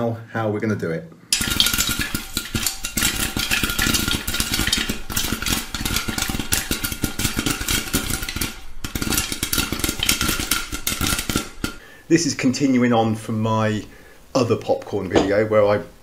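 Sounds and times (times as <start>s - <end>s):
popcorn popping crackle: 1.3s - 12.4s.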